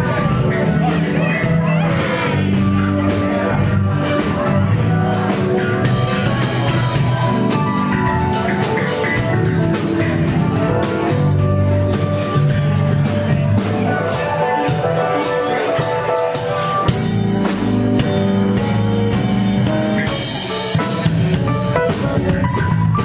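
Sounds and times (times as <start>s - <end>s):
rock and roll band music: 0.0s - 23.0s.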